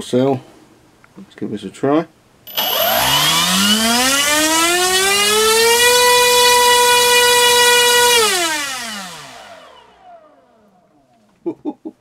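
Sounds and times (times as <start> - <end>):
electric motor propeller whine: 2.5 - 11.3.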